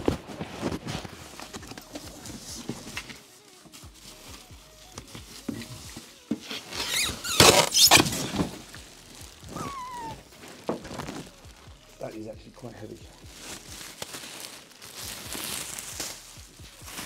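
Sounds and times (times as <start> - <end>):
packaging scraping and squeaking: 5.2 - 11.5, 12.2 - 16.3.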